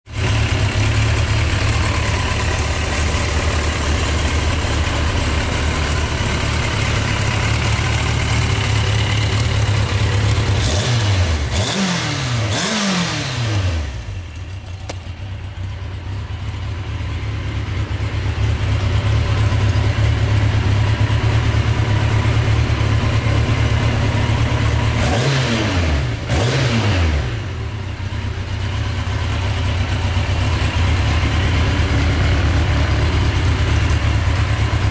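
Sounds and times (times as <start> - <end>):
motorcycle engine idling: 0.1 - 12.6, 13.4 - 25.4, 27.3 - 34.9
throttle blips revving engine: 10.3 - 14.2, 25.0 - 27.4.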